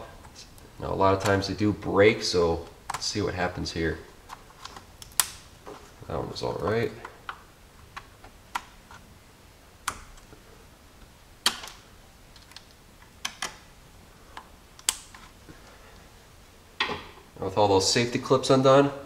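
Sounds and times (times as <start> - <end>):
sharp plastic clicks: 4.3 - 5.4, 11.4 - 13.7, 14.4 - 15.3.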